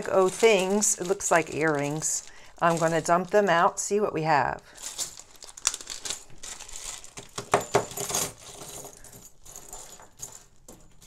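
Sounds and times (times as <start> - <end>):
plastic bag crinkling: 0.0 - 10.7
metal earrings clattering on table: 7.4 - 11.0.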